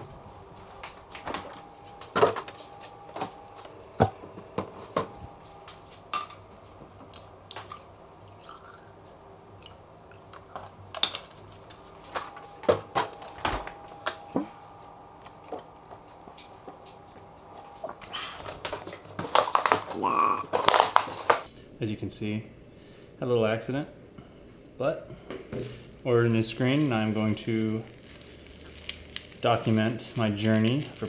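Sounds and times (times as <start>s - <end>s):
milk pouring into glass: 8.2s - 9.0s.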